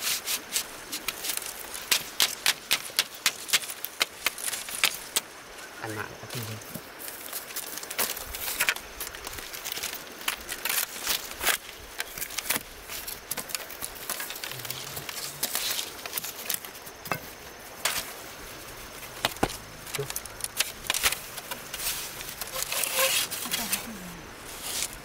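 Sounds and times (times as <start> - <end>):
rustling: 0.0 - 25.0
sharp knocks and cracks: 0.9 - 5.3, 6.6 - 18.2, 19.0 - 23.6.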